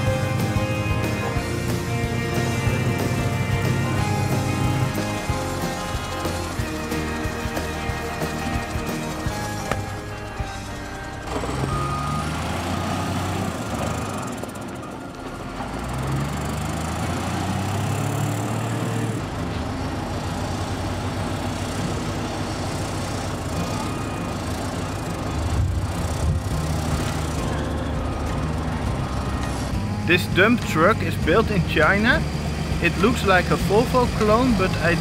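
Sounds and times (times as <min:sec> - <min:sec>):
wheel loader diesel engine: 0:00.0 - 0:35.0
reversing alarm beeping: 0:08.0 - 0:16.8.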